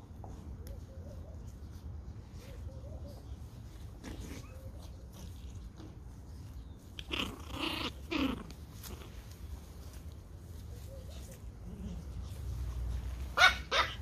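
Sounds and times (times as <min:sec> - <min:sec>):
puppies play-fighting: 0:00.0 - 0:14.0
puppy yapping: 0:13.4 - 0:14.0.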